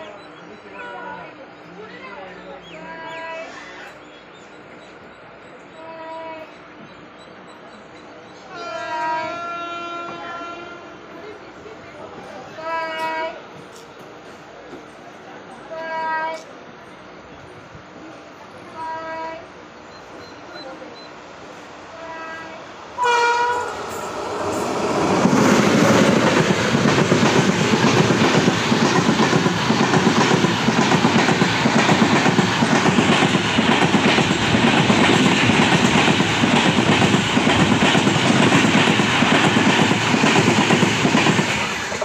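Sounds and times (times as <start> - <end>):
train horn blast: 8.5 - 11.0, 22.0 - 24.6
passing train wheels clattering: 22.8 - 42.0.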